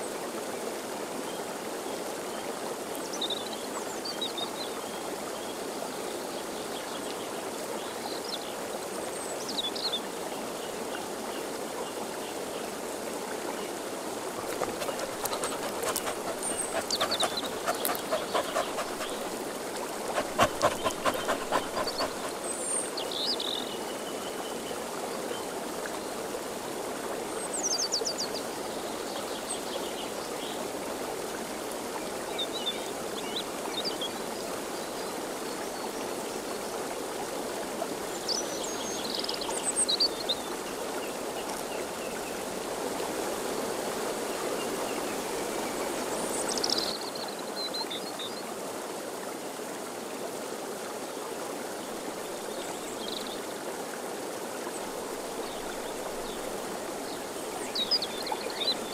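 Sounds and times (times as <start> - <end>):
steady rushing outdoor noise: 14.5 - 22.5.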